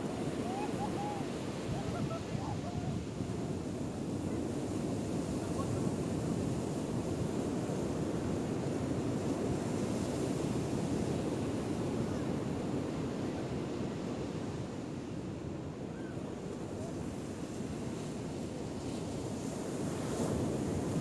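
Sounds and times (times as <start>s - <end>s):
ocean surf breaking: 0.0s - 6.7s
wind on microphone: 0.0s - 14.8s.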